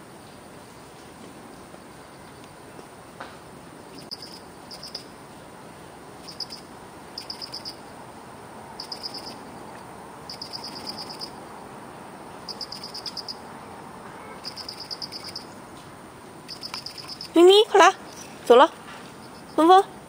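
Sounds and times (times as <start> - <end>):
steady background hiss: 0.0 - 20.0
high rapid chirps: 12.5 - 13.4, 14.4 - 15.5, 16.5 - 17.9.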